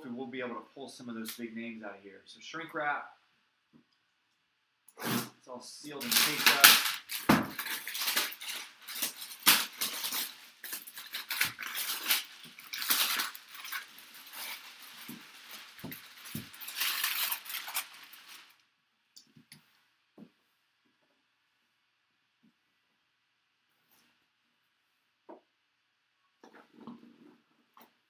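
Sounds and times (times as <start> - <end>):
plastic wrap crinkling: 6.0 - 18.6.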